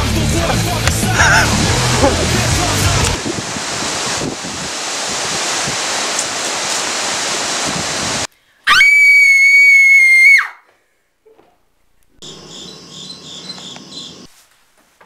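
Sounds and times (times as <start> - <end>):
wind noise on microphone: 1.0 - 8.3
girl screaming: 8.7 - 10.7.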